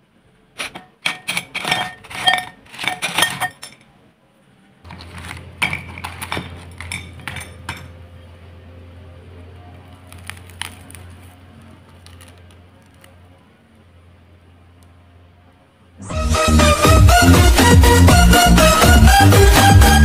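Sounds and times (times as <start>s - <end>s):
glass dish clinking on plate: 1.0s - 3.9s, 5.6s - 8.0s
crisp clicks of fried food handled: 9.8s - 13.2s.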